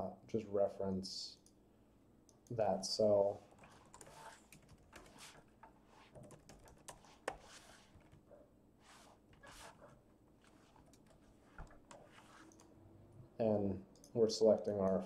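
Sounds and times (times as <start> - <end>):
keyboard typing and clicks: 3.5 - 8.2, 10.7 - 12.7.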